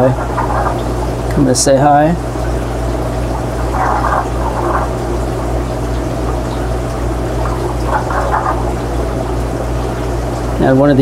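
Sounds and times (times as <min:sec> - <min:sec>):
aquarium water bubbling: 0:00.0 - 0:11.0
electrical hum: 0:00.0 - 0:11.0.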